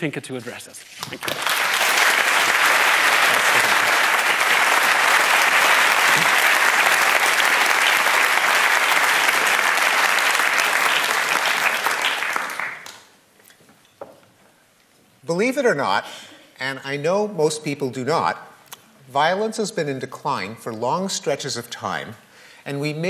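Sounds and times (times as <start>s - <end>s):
audience applauding: 1.0s - 13.1s.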